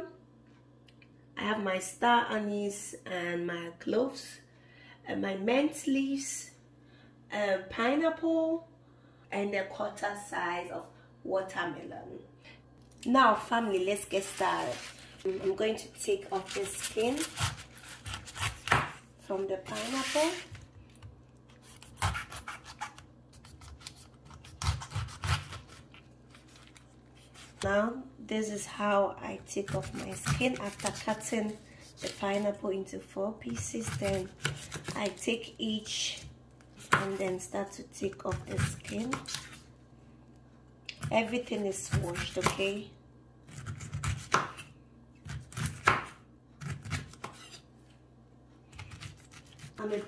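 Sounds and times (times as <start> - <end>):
knife crunching through pineapple: 16.2 - 19.0, 19.7 - 27.7, 29.6 - 32.5, 33.7 - 35.3, 38.4 - 39.7, 48.7 - 50.0
knife cutting on wooden board: 21.6 - 25.8.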